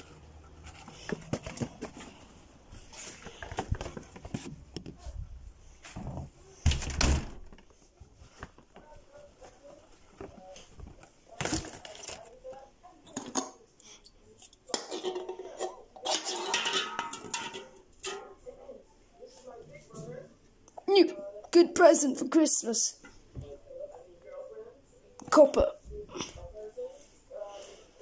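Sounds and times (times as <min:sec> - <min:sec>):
groceries and phone handled: 0:00.0 - 0:13.7.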